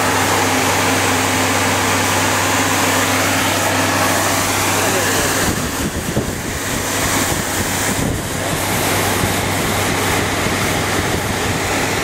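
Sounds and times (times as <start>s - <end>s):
water stream hissing from nozzle: 0.0s - 12.0s
wind buffeting microphone: 4.5s - 12.0s.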